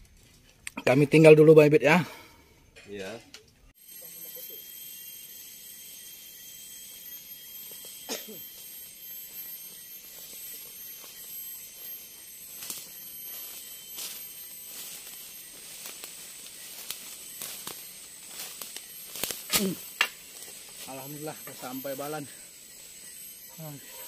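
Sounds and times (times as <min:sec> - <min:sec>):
chorus of forest insects: 0:00.0 - 0:24.0.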